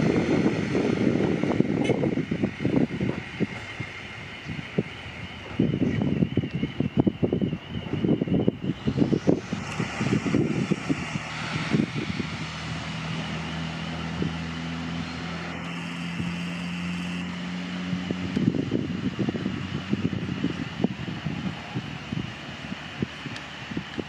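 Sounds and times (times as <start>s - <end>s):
diesel railcar engine humming: 0.0s - 24.0s
wind buffeting microphone: 0.0s - 24.0s.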